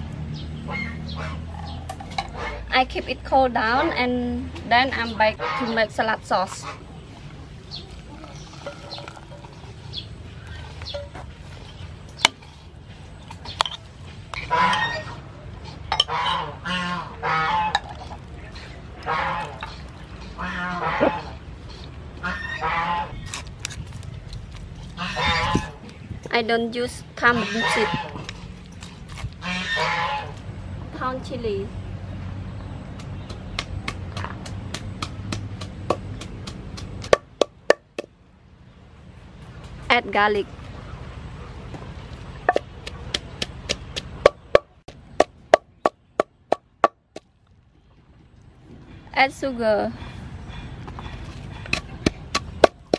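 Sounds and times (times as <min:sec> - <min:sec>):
geese honking: 0:14.4 - 0:15.3, 0:16.0 - 0:17.9, 0:19.0 - 0:21.4, 0:22.2 - 0:23.2, 0:25.0 - 0:25.8, 0:27.3 - 0:28.2, 0:29.4 - 0:30.4
wooden pestle pounding in mortar: 0:33.0 - 0:38.1, 0:42.5 - 0:47.0, 0:51.6 - 0:52.9.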